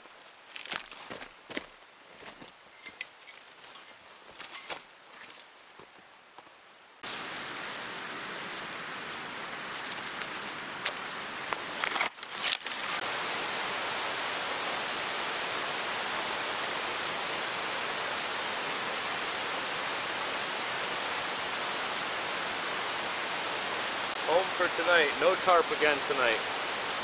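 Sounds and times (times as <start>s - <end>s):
river water rushing: 7.0s - 27.0s.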